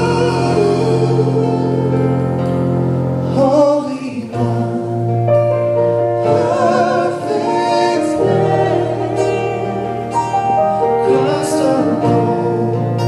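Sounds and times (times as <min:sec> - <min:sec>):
voices singing with vibrato: 0:00.0 - 0:02.0, 0:06.0 - 0:13.0
worship band playing: 0:00.0 - 0:13.0.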